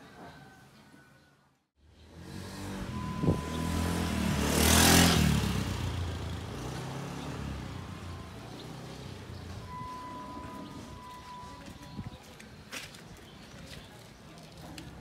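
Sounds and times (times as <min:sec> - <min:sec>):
vehicle passing by: 0:01.8 - 0:11.1.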